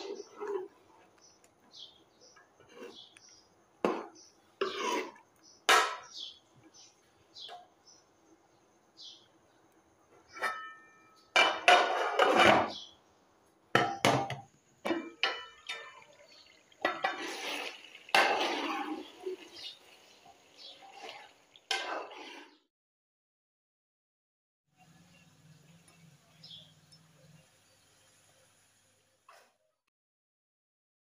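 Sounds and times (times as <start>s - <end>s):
metal ladle clanking on a pot: 13.8s - 16.1s.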